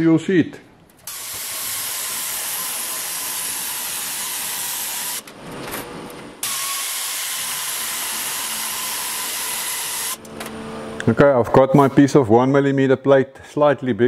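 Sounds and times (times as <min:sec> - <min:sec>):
air-powered metal shear hissing: 0:01.1 - 0:05.3, 0:06.4 - 0:10.2.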